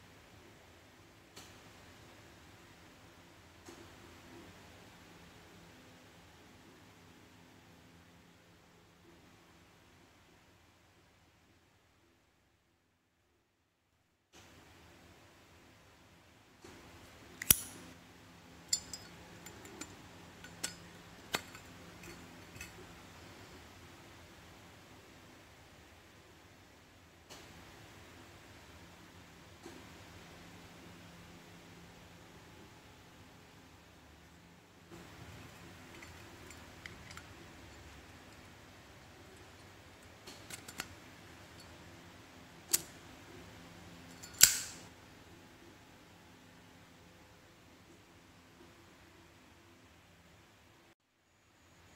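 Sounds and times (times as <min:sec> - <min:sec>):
metal lighter clicks: 0:17.4 - 0:17.8, 0:44.2 - 0:44.8
light metal clicks: 0:17.4 - 0:18.0, 0:18.6 - 0:23.0, 0:35.0 - 0:38.5, 0:39.3 - 0:41.8, 0:44.1 - 0:44.9.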